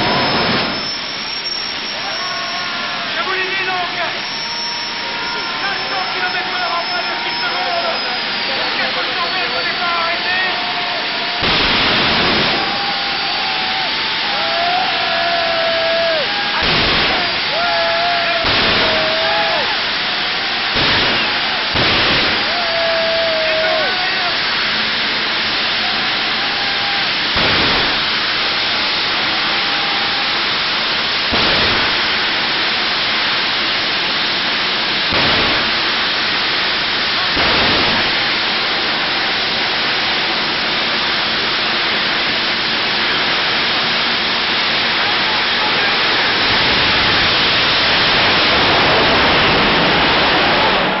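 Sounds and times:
loud bangs: 11.1s - 14.9s, 16.2s - 25.7s, 27.1s - 29.6s, 31.1s - 33.5s, 34.9s - 40.5s.

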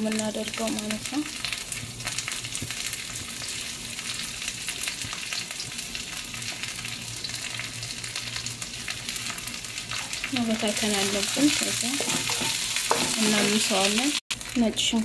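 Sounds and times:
leaves sizzling in hot fat: 0.0s - 15.0s.

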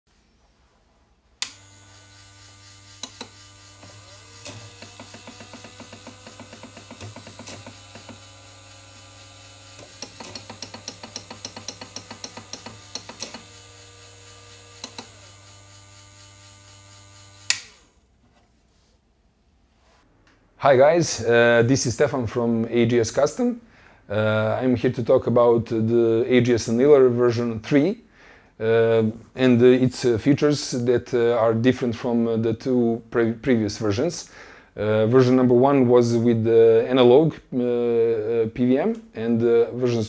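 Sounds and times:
motor switch click: 1.4s - 1.8s, 3.0s - 8.4s, 9.7s - 13.6s, 14.8s - 15.3s, 17.4s - 17.9s
electric motor humming: 1.4s - 18.0s.

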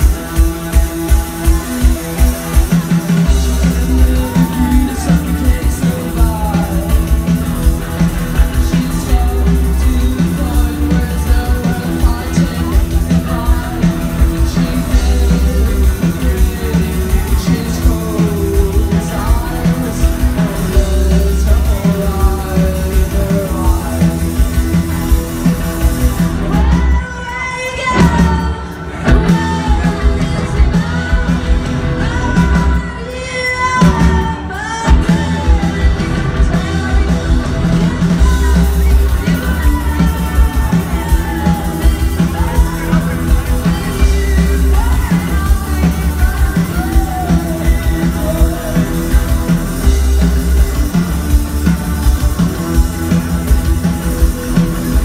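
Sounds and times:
drum kit: 0.0s - 55.0s
electric bass: 0.0s - 55.0s
electric guitar: 0.0s - 55.0s
woman singing: 2.6s - 7.4s, 8.1s - 24.7s, 26.4s - 51.1s.

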